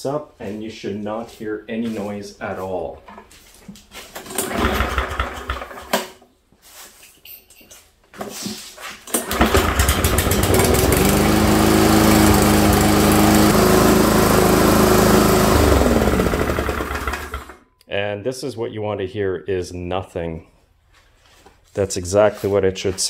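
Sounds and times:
lawn mower engine running: 4.2 - 5.9, 9.1 - 17.6
lawn mower recoil starter pull: 4.2 - 6.2, 9.1 - 17.6.

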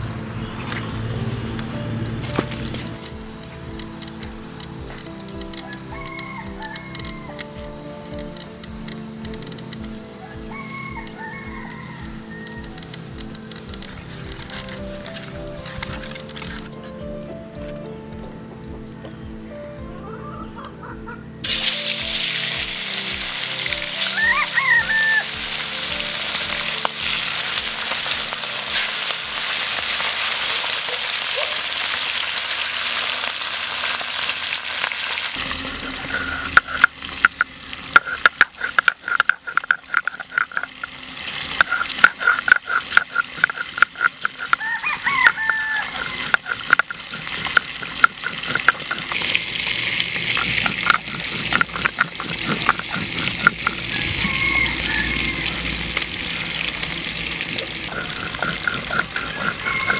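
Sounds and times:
rooster crowing: 5.5 - 7.8, 10.2 - 14.9, 23.7 - 27.6, 44.4 - 46.9, 52.8 - 57.0, 57.9 - 59.9
fish sizzling in hot oil: 21.4 - 59.9
stone grinding on stone slab: 35.4 - 55.6, 57.9 - 59.9.

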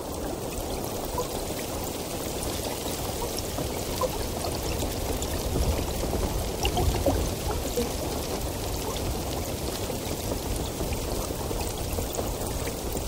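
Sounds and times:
water flowing: 0.0 - 13.0
small bubbling plinks: 3.2 - 8.0.

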